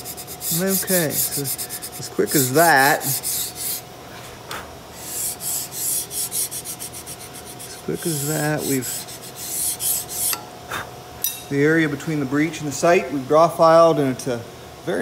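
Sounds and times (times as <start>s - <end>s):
file rasping on steel barrel: 0.0s - 3.9s, 5.0s - 10.4s.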